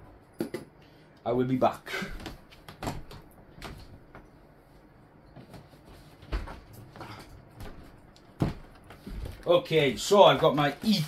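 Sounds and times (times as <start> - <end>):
knocks and clunks of handling things: 2.2 - 4.3, 5.3 - 9.5.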